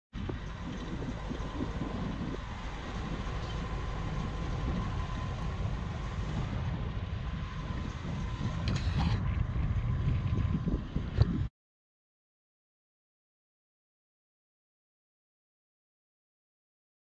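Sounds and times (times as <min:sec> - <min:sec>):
diesel locomotives rumbling: 0:00.2 - 0:11.5
faint steady whine: 0:00.2 - 0:11.5.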